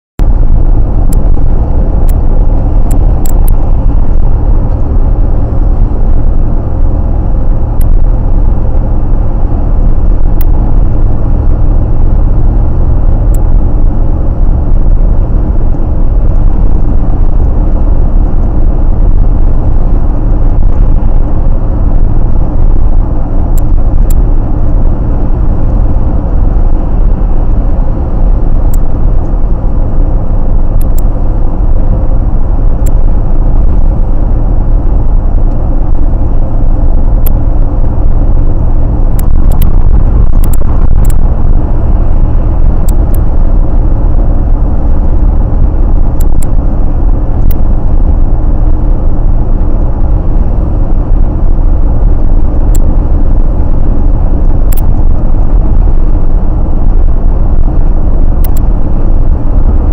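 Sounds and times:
car road and engine rumble: 0.0s - 59.9s
faint ticks: 2.9s - 3.6s, 30.8s - 31.1s, 40.4s - 41.2s, 58.4s - 58.6s.

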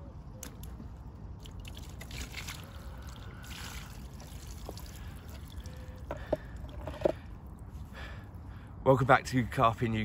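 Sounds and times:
water pouring and splashing: 1.3s - 7.6s.

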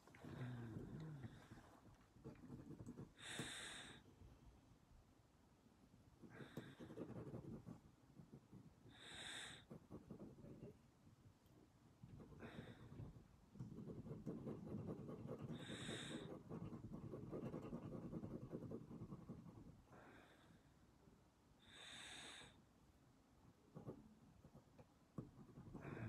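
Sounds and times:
person breathing: 0.1s - 1.9s, 3.1s - 4.1s, 6.2s - 7.0s, 8.9s - 9.8s, 12.3s - 13.2s, 15.5s - 16.4s, 19.9s - 20.8s, 21.6s - 22.6s
pencil scratching on paper: 1.5s - 4.0s, 6.2s - 10.8s, 12.1s - 19.9s, 23.7s - 26.0s.

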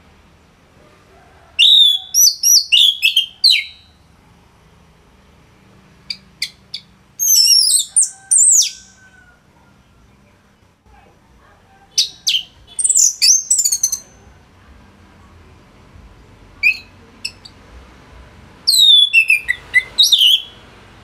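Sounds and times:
thrush singing: 16.2s - 21.0s.

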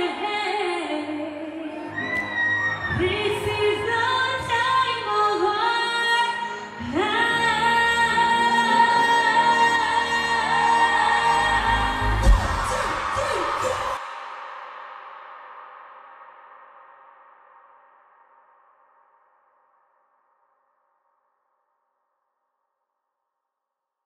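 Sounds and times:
woman singing into a microphone: 0.0s - 14.3s
heavy bass: 9.6s - 14.0s.

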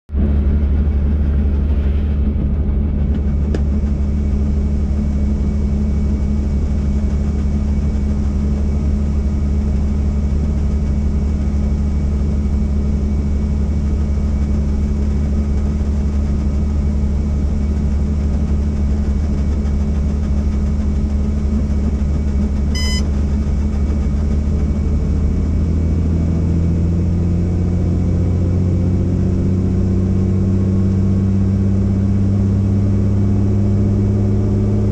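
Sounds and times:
helicopter engine and rotor drone: 0.1s - 34.9s
short electronic beep: 22.8s - 23.1s.

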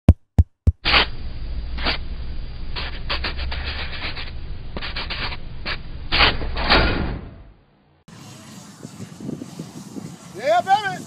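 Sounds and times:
low steady hum: 1.0s - 6.2s
pen scratching on paper: 2.8s - 5.8s.

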